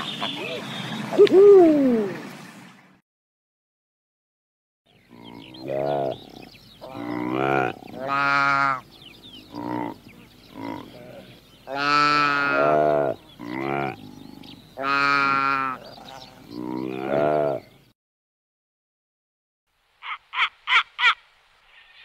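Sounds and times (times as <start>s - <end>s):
sheep bleating: 10.6s - 14.0s.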